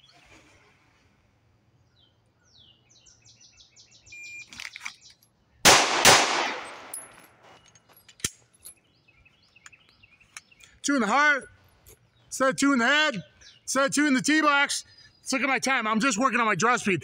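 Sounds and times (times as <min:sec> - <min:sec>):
pistol shots: 0:05.6 - 0:07.1.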